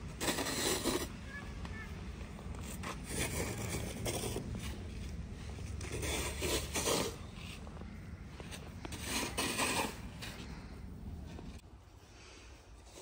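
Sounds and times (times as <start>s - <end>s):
snow shovels scraping on paving: 0.0s - 7.7s, 8.4s - 10.7s.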